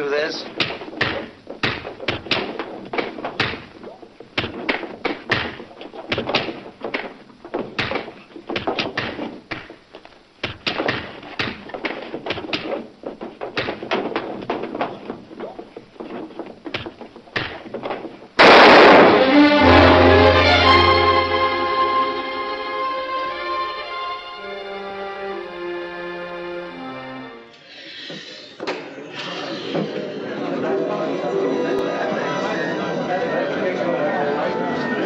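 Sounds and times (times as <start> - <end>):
punches and thuds: 0.4 - 9.8, 10.4 - 19.1
loud bang: 18.4 - 21.4
dramatic orchestral chord: 19.2 - 27.2.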